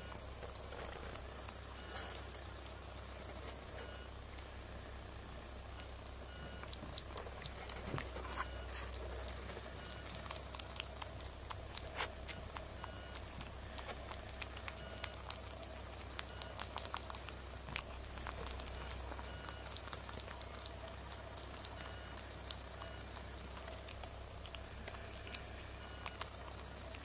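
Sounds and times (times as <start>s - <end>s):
faint steady hum: 0.0s - 27.0s
small clicks and ticks: 5.7s - 27.0s.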